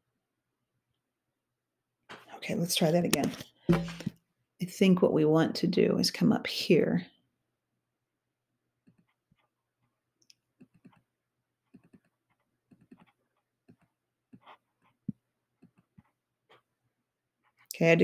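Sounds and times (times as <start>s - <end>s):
keyboard and mouse clicks: 10.6s - 11.0s, 11.7s - 16.1s.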